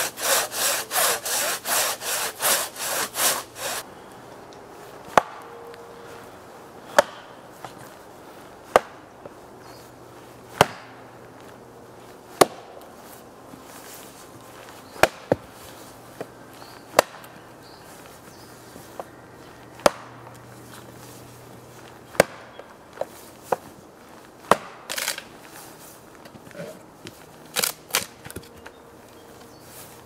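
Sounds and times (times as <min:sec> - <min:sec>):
wood splintering: 0:00.0 - 0:03.8, 0:24.5 - 0:25.3, 0:27.5 - 0:28.4
axe chopping into log: 0:05.1 - 0:05.4, 0:08.7 - 0:09.0, 0:10.6 - 0:10.9, 0:17.0 - 0:17.2, 0:19.8 - 0:20.1, 0:24.5 - 0:25.2.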